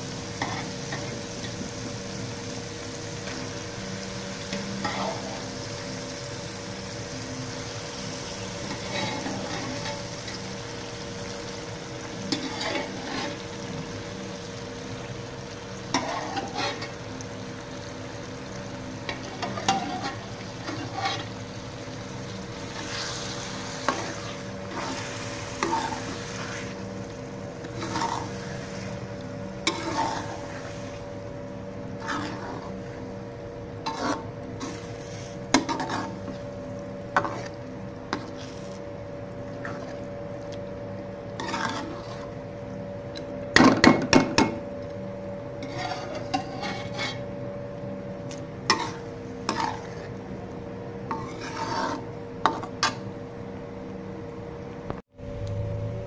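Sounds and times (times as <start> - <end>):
ladle scraping a steel pot: 8.6 - 10.0, 12.3 - 13.4, 16.0 - 17.0, 19.1 - 21.4, 22.7 - 26.8, 27.6 - 29.0, 29.6 - 31.1, 32.0 - 32.8, 33.8 - 36.4, 37.2 - 38.8, 41.4 - 42.4, 45.6 - 47.3, 48.7 - 50.2, 51.1 - 53.0
low hum: 55.1 - 56.0.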